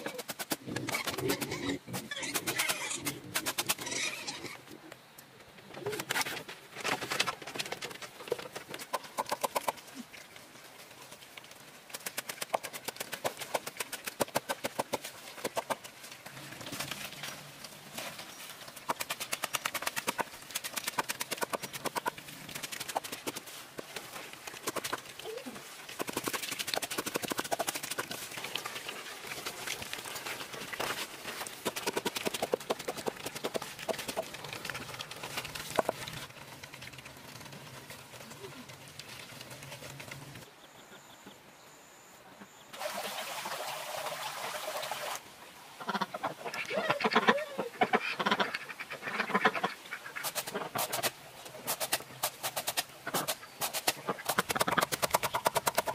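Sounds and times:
pigs chewing crunchily: 0.0s - 4.5s, 6.9s - 40.5s, 50.2s - 55.9s.

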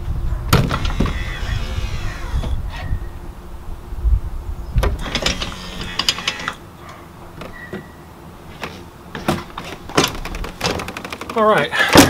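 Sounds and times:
door swinging open: 0.5s - 2.8s, 4.8s - 6.6s, 7.3s - 8.0s, 8.6s - 12.0s.

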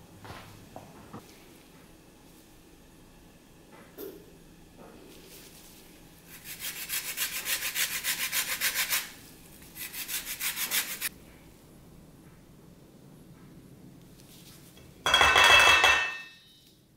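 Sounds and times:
lemon rind scraping on grater: 6.3s - 9.1s, 9.8s - 11.1s.

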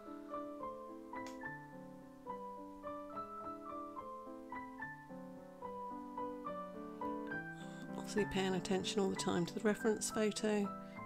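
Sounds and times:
soft piano music: 0.0s - 11.0s.

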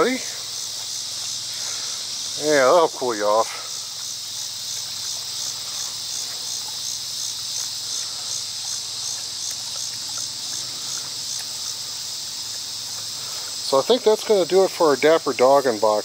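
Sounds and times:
insects buzzing: 0.0s - 16.0s
dog lapping water: 3.7s - 14.7s.

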